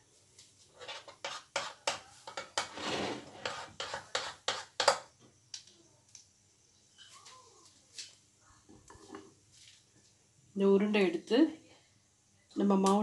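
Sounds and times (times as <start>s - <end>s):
brief scraping: 2.7s - 3.4s.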